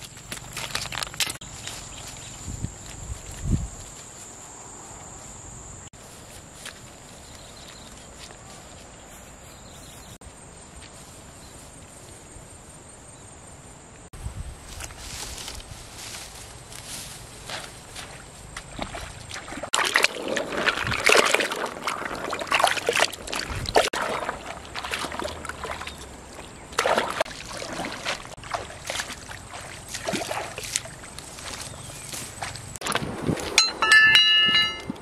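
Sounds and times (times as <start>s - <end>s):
river water splashing: 17.8s - 34.9s.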